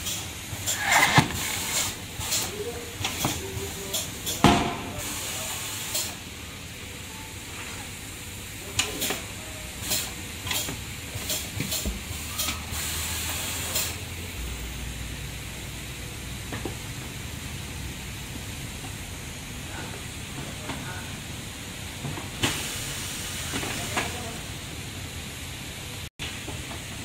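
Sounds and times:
compressed air hissing: 0.0s - 6.3s, 9.0s - 14.1s, 22.4s - 23.8s.

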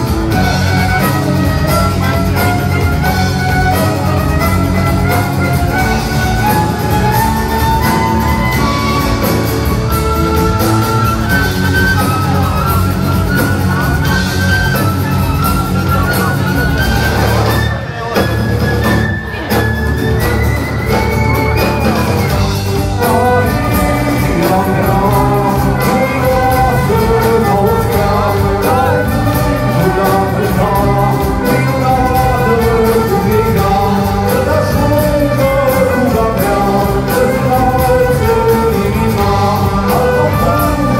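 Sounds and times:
drums: 0.0s - 40.9s
electric guitars: 0.0s - 40.9s
person singing: 22.2s - 40.9s.

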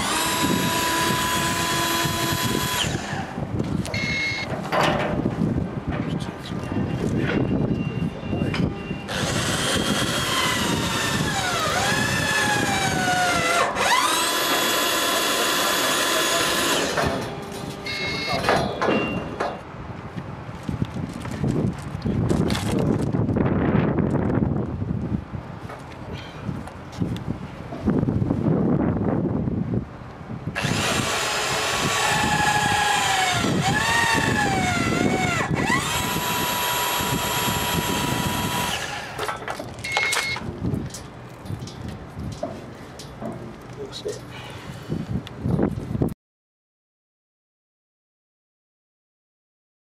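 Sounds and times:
press tool motor whining: 0.0s - 3.3s, 9.1s - 17.4s, 30.6s - 39.4s.

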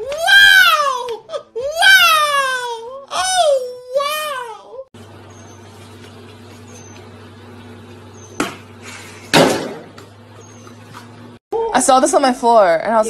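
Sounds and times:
sharp knock: 9.3s - 10.0s
noisy thump and rattle: 9.3s - 10.2s.

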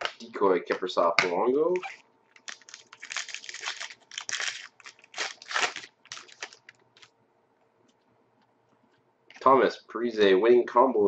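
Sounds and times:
foil wrapper crinkling: 1.8s - 7.1s.

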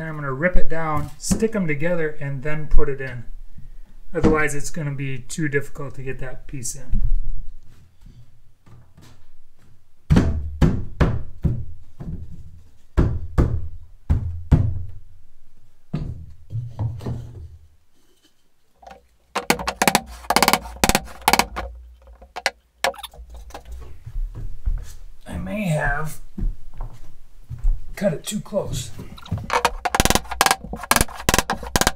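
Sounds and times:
wooden block knocking on floorboard: 18.8s - 23.6s, 29.2s - 31.9s.

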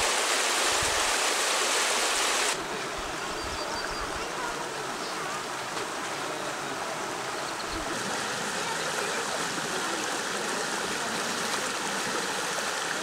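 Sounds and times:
water flowing over rocks: 0.0s - 13.0s
faint voices: 2.6s - 12.8s
river rapids rushing: 4.0s - 13.0s.

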